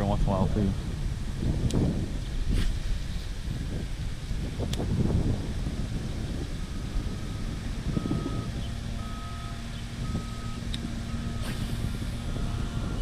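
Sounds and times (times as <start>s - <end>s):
low engine hum: 0.0s - 13.0s
wind rumble on microphone: 0.0s - 13.0s
reversing alarm beeping: 6.7s - 13.0s.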